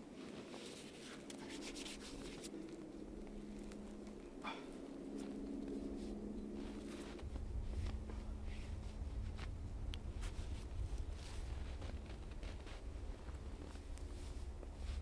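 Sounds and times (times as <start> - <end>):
low rumble: 2.5 - 15.0
clothing rustling: 4.5 - 15.0.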